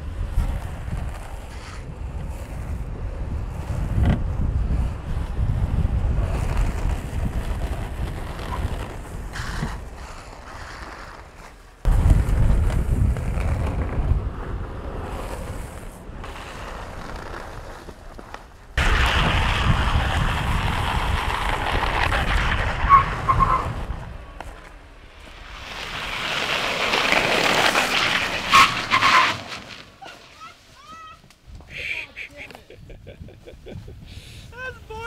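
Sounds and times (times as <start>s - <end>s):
wind rushing over microphone: 0.0s - 10.5s, 11.8s - 28.5s, 32.5s - 35.0s
wheels sliding on pavement: 0.0s - 32.9s
skateboard wheels rolling on asphalt: 0.0s - 35.0s
wheel squeal: 21.5s - 23.8s, 25.7s - 29.8s.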